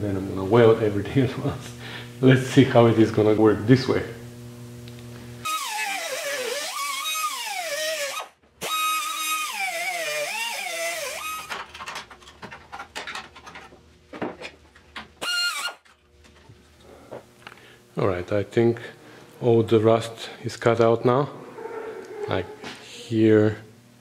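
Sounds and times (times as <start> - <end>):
cut-off wheel cutting steel: 5.4 - 11.5
sharp clicks and knocks: 11.4 - 15.2.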